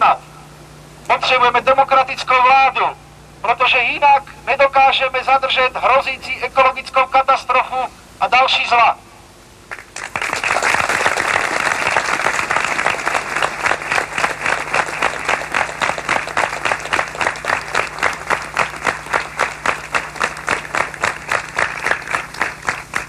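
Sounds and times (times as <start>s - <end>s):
crowd clapping in unison: 9.7s - 23.0s.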